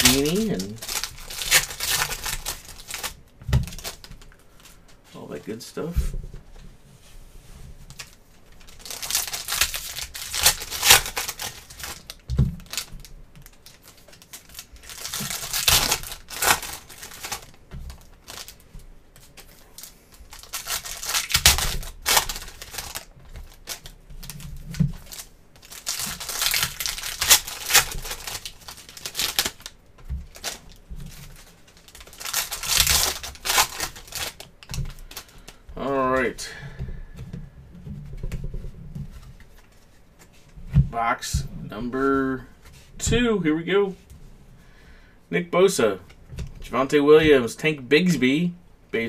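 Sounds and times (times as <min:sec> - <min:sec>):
foil wrappers tearing and crinkling: 0:00.0 - 0:04.6, 0:07.9 - 0:35.9.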